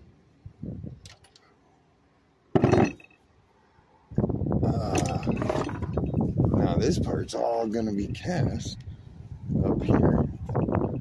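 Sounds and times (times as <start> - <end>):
knocking and rubbing: 2.6 - 3.1, 5.0 - 6.2
sharp clunk: 2.6 - 3.2.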